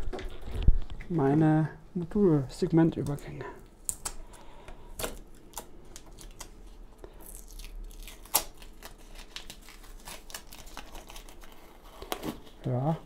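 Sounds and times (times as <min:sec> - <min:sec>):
tape peeling with crackles: 0:03.0 - 0:12.9.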